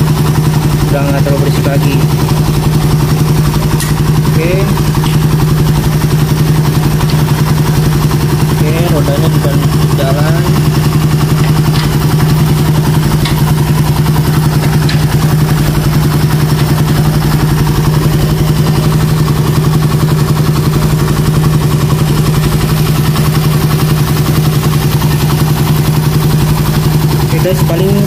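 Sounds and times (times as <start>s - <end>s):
motorcycle engine idling: 0.0s - 28.0s.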